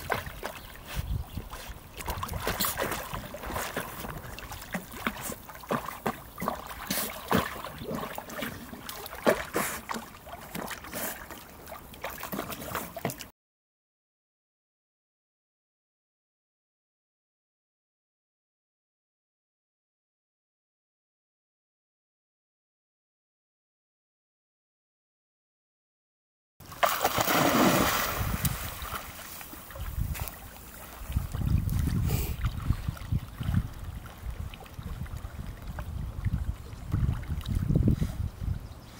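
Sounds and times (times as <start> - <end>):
wind buffeting microphone: 0.0 - 4.9, 27.4 - 38.9
water splashing: 0.0 - 13.3, 26.6 - 37.7.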